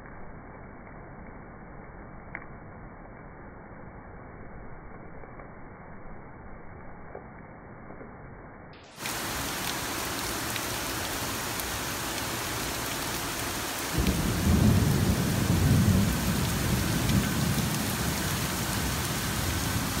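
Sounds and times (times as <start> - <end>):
steady rain hissing: 0.1 - 20.0
low rumble of thunder: 13.9 - 20.0.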